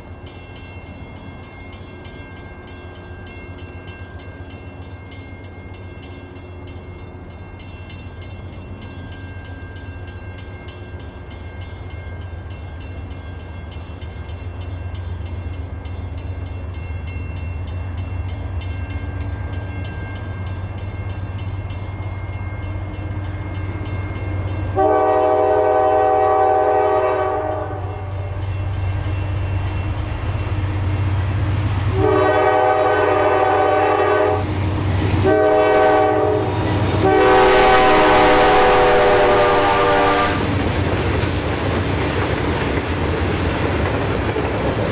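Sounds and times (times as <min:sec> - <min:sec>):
diesel locomotive engine drone: 0:00.0 - 0:44.9
train air horn blasts: 0:24.7 - 0:28.3, 0:31.9 - 0:34.5, 0:35.2 - 0:40.5.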